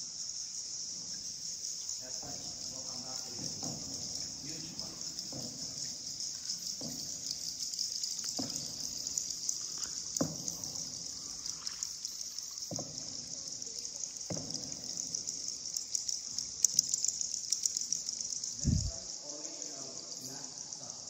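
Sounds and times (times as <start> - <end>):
high-pitched hiss: 0.0 - 21.0.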